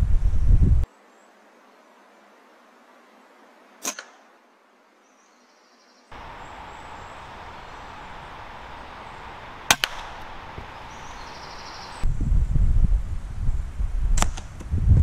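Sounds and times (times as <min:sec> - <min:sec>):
woodland hiss: 0:00.9 - 0:12.0
air rifle shot crack: 0:06.3 - 0:11.8.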